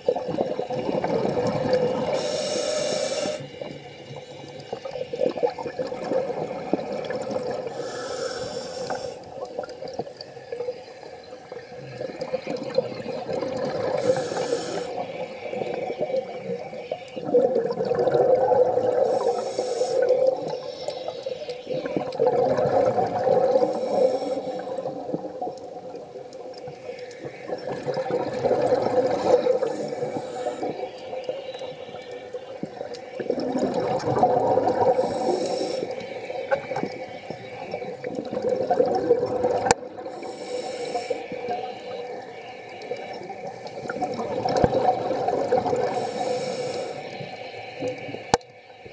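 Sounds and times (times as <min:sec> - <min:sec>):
exhaled bubbles rushing: 0:00.0 - 0:02.4, 0:03.5 - 0:07.8, 0:11.4 - 0:19.3, 0:20.0 - 0:26.5, 0:27.2 - 0:40.3, 0:41.4 - 0:47.2
regulator inhale hiss: 0:01.9 - 0:05.0, 0:07.6 - 0:11.5, 0:13.8 - 0:16.5, 0:18.9 - 0:20.9, 0:23.4 - 0:25.4, 0:26.7 - 0:27.9, 0:29.2 - 0:32.3, 0:34.8 - 0:38.0, 0:40.0 - 0:44.2, 0:45.8 - 0:48.9.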